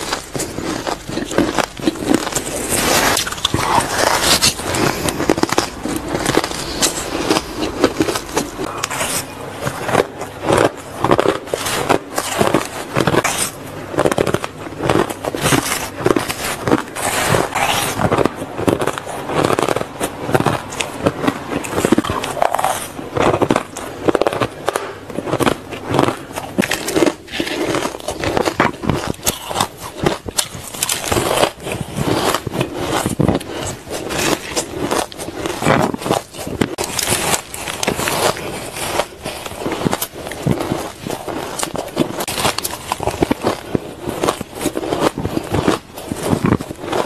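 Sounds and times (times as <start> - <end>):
teeth crunching ice: 0.0 - 47.0.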